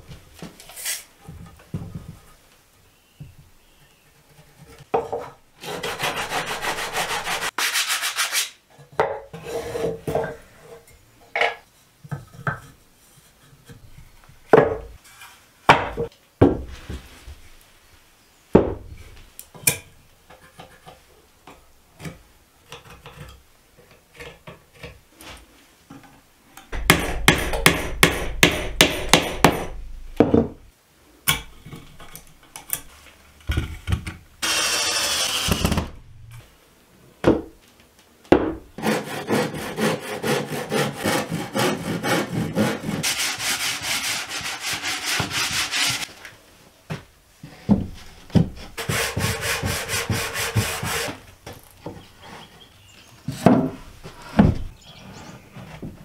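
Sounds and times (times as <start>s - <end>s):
sandpaper rasping on wood: 5.6s - 8.5s, 38.8s - 46.1s, 48.8s - 51.2s.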